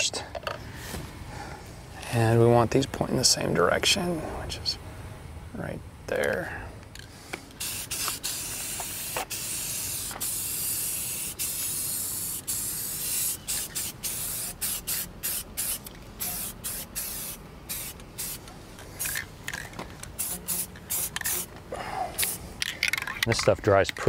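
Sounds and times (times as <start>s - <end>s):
aerosol spray can hissing: 7.6s - 18.4s, 20.2s - 21.5s.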